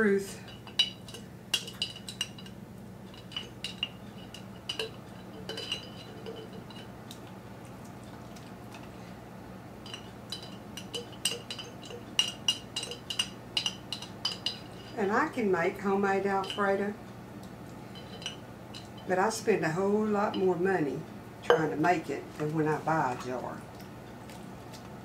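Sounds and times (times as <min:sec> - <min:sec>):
metal utensil scraping glass jar: 0:03.1 - 0:06.9, 0:09.9 - 0:15.1, 0:17.9 - 0:19.2.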